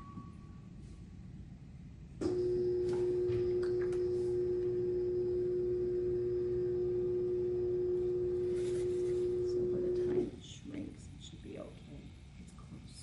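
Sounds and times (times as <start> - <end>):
potter's wheel motor humming: 2.2 - 10.4
faint scrape: 8.4 - 9.4.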